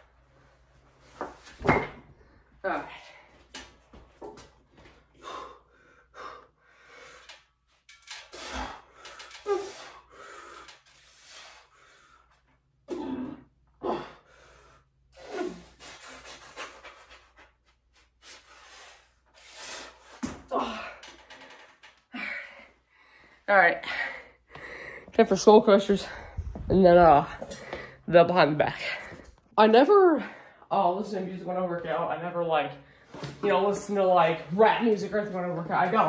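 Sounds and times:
man breathing hard: 5.1 - 7.6, 8.3 - 12.5, 13.9 - 16.8, 22.1 - 25.2.

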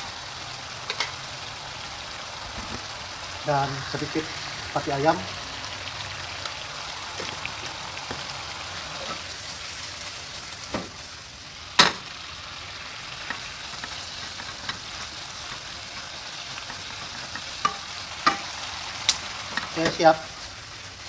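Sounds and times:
stir-fry sizzling in a pan: 0.0 - 21.0
wooden spatula stirring: 13.2 - 18.4.

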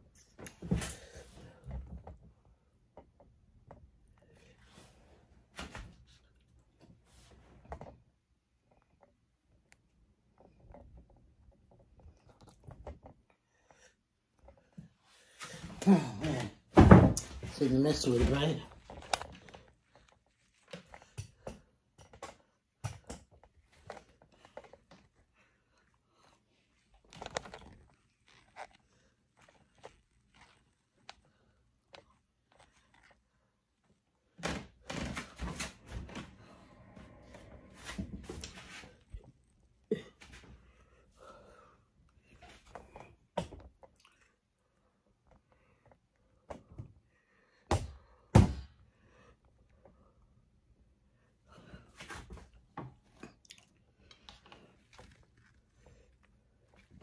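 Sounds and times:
chewing: 43.7 - 44.6, 53.0 - 57.0.

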